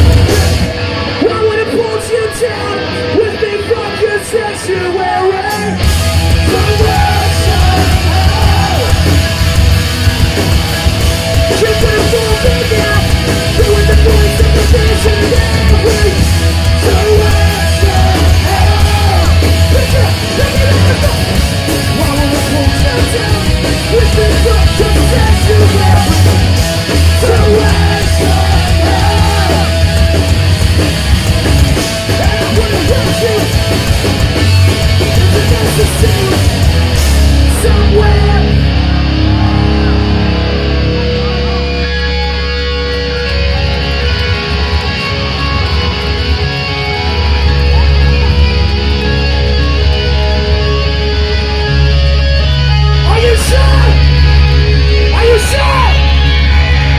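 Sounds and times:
punk band playing live: 0.0 - 56.9
shouted vocals: 3.6 - 9.4, 11.6 - 30.3, 55.0 - 56.9.

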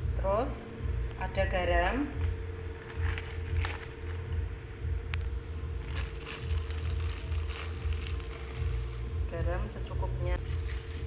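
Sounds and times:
faint steady hum: 0.0 - 11.0
handling packets rumbling: 1.9 - 9.1, 10.4 - 11.0.

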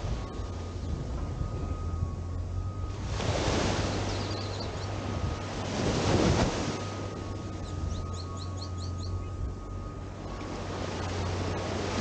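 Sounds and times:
steady low hum: 0.0 - 12.0
wind on microphone: 0.0 - 12.0
small waves washing up shore: 2.7 - 7.9, 9.7 - 12.0
bird chirping: 3.8 - 5.0, 7.1 - 10.0.

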